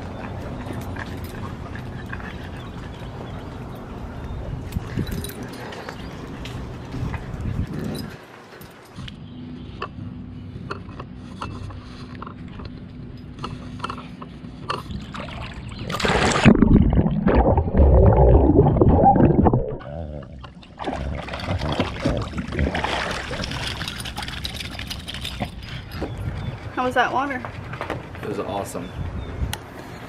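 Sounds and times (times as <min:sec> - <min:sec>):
underwater bubbling and churning: 0:14.7 - 0:24.0
dog splashing into pool: 0:15.1 - 0:18.6, 0:20.8 - 0:24.2
dog splashing and shaking off water: 0:15.3 - 0:16.7, 0:20.8 - 0:25.5.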